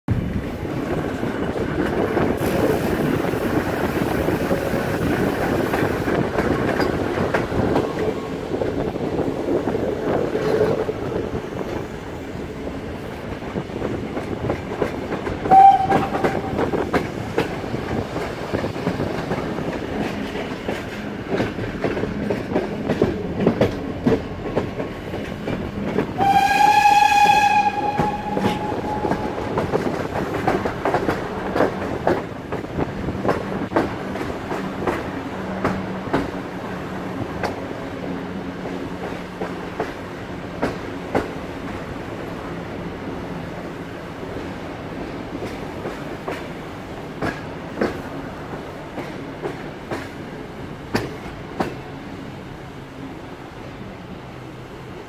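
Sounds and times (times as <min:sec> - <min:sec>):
steam train running: 0:00.1 - 0:55.0
steam whistle: 0:15.4 - 0:16.8, 0:26.2 - 0:29.7.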